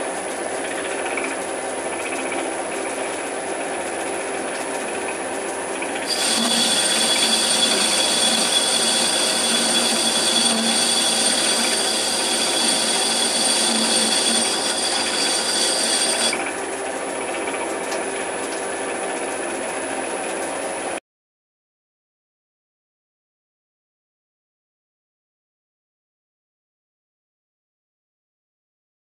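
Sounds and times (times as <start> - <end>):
lathe motor running: 0.1 - 20.9
cutting tool squealing: 6.0 - 16.6.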